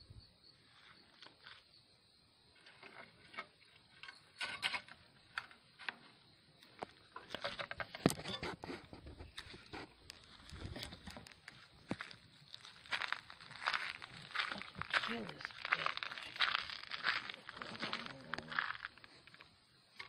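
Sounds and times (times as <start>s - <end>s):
rustling through grass: 9.2s - 18.9s.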